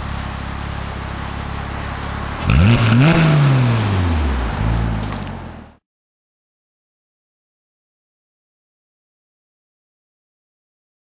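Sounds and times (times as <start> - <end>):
car engine accelerating: 0.0 - 5.8.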